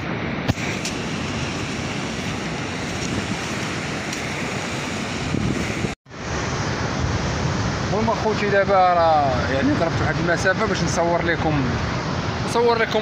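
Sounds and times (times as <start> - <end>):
sea surf: 0.0 - 13.0
wind on microphone: 0.0 - 13.0.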